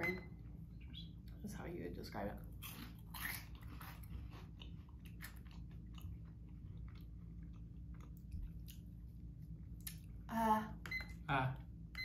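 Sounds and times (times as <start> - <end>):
chewing crunchy snacks: 2.5 - 8.9.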